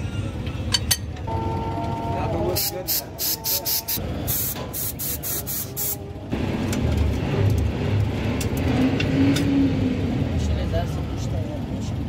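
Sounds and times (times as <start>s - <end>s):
air spray gun hissing: 2.6s - 6.0s.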